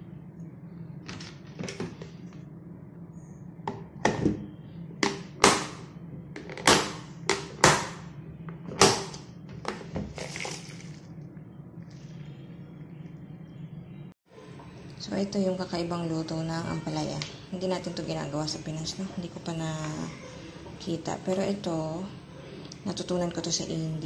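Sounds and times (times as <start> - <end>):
steady low hum: 0.0 - 24.0
beans washed in tub of water: 10.1 - 11.1.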